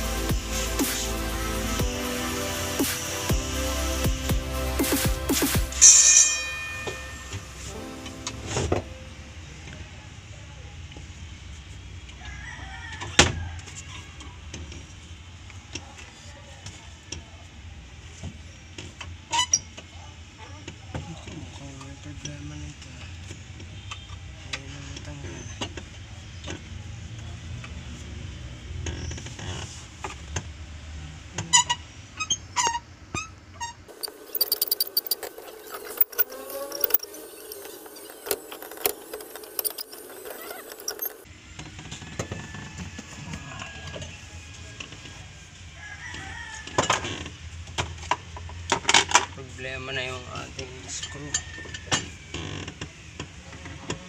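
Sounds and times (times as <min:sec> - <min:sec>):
steady hum: 0:00.0 - 0:09.5
short rising squeak: 0:04.8 - 0:09.2, 0:31.5 - 0:41.3
hand tools clicking and knocking: 0:33.9 - 0:41.3.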